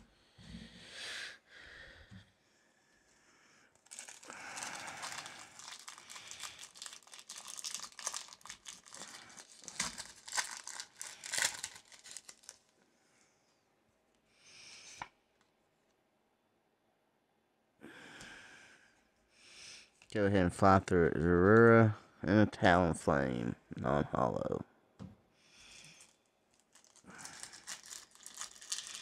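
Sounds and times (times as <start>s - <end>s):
foil wrapper crinkling and tearing: 3.8s - 12.8s, 25.9s - 29.0s
wrapper rustle: 3.8s - 12.8s, 26.0s - 29.0s.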